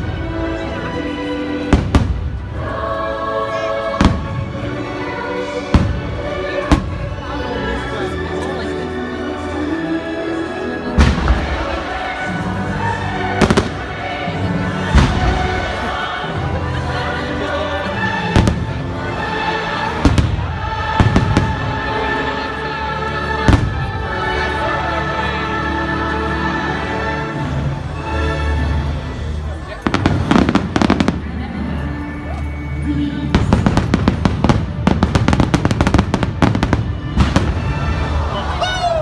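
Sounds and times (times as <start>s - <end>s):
fireworks bursting with bangs: 1.7s - 2.4s, 5.7s - 7.1s, 11.0s - 12.1s, 13.4s - 14.0s, 14.9s - 15.8s, 20.0s - 21.8s, 29.8s - 31.4s, 33.3s - 38.0s.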